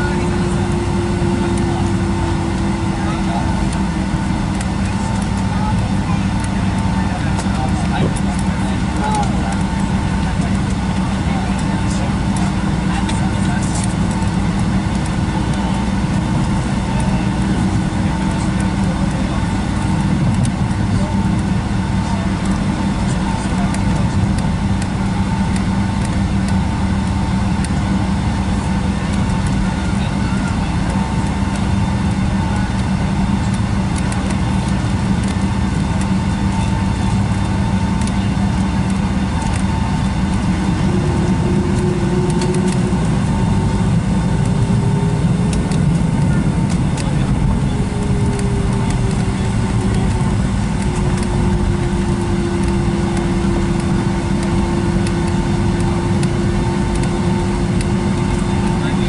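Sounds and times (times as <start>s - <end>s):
airliner cabin noise: 0.0s - 59.0s
jet engines idling with whine: 0.0s - 59.0s
faint drifting tone: 39.8s - 54.1s.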